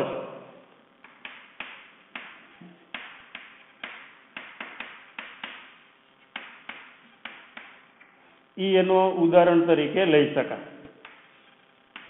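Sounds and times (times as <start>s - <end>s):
chalk tapping on blackboard: 1.0s - 7.8s, 11.0s - 12.0s.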